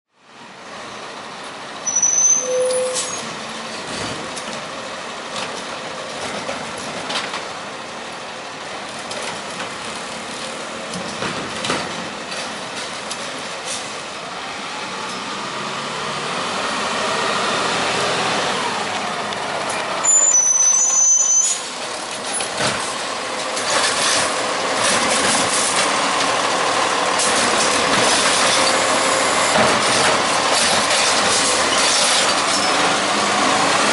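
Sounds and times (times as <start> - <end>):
garbage truck engine running: 21.0 - 33.9.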